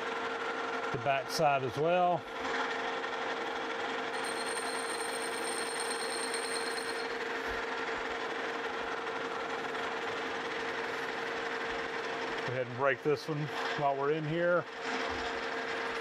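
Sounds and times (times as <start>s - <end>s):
lathe hum with gear whine: 2.2s - 12.5s.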